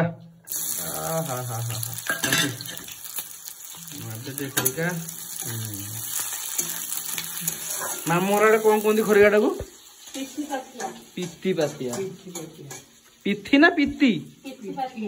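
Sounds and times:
onions sizzling in hot oil: 0.5s - 15.0s
spatula stirring in pan: 1.8s - 13.2s.

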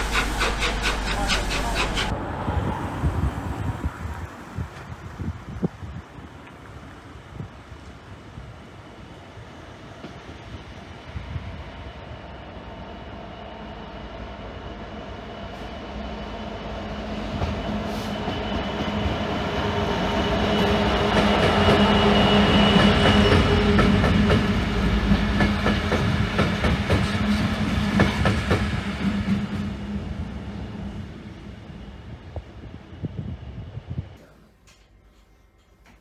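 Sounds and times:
train wheels clicking over rail joints: 0.0s - 2.1s, 21.0s - 29.4s
diesel locomotive engines humming: 0.0s - 3.2s, 6.7s - 34.0s.

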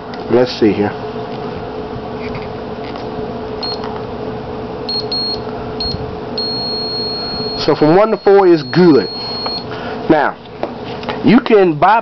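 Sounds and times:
steady low hum: 0.0s - 12.0s
multimeter beeps: 3.6s - 3.9s, 4.9s - 9.7s
multimeter steady tone: 3.6s - 3.9s, 4.8s - 9.7s.

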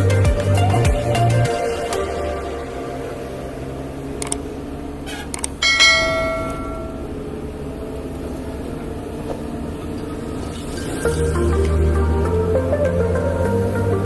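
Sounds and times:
low music bed: 0.0s - 5.0s, 5.6s - 14.0s
bell ding: 5.6s - 7.3s.

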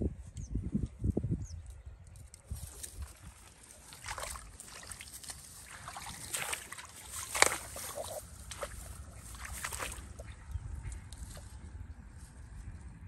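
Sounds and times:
muddy water sloshing and splashing: 2.3s - 12.6s.

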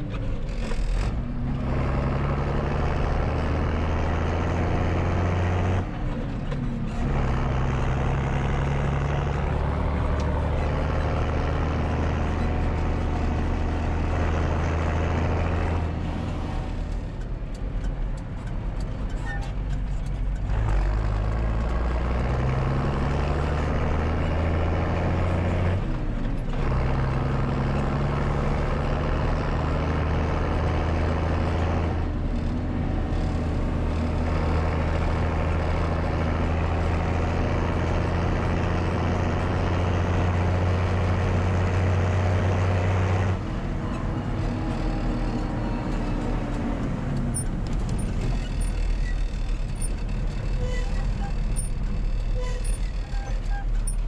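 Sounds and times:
tractor diesel engine running: 0.0s - 54.0s.

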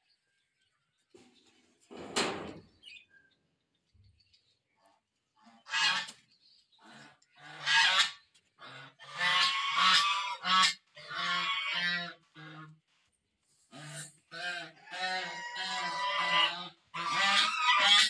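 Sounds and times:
geese honking: 5.6s - 6.2s, 6.8s - 12.8s, 13.7s - 18.0s.

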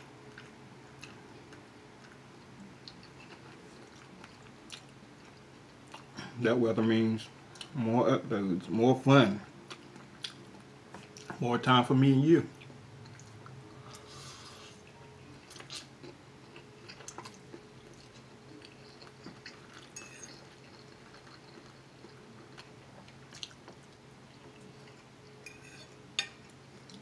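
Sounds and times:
person chewing: 0.2s - 2.2s, 2.8s - 6.2s, 9.7s - 11.3s, 12.5s - 25.4s.

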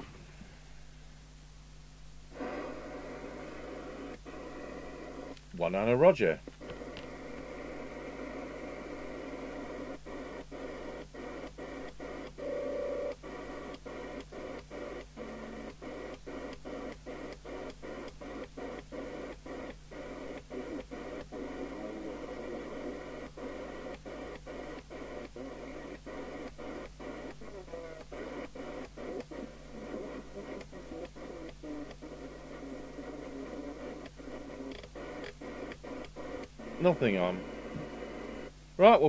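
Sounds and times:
radio static hiss: 0.0s - 39.0s.

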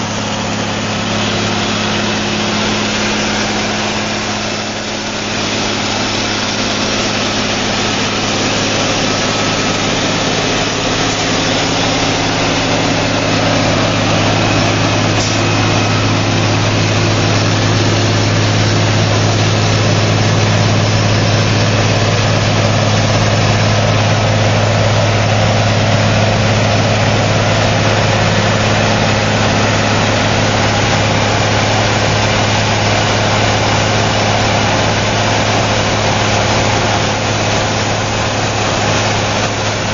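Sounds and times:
diesel engine running: 0.0s - 39.9s
machinery rushing noise: 0.0s - 39.9s.

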